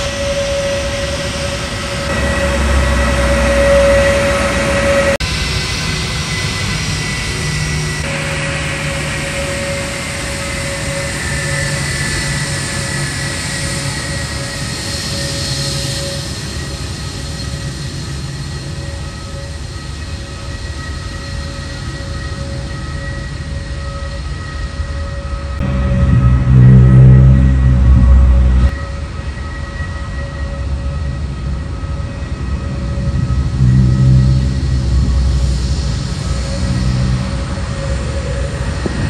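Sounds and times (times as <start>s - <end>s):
jet engines rushing and whining: 0.0s - 39.0s.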